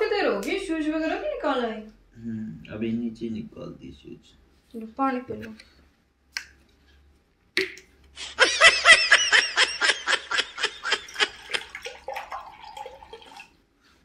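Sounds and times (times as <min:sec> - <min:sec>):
rhythmic laughter: 0:08.2 - 0:11.8.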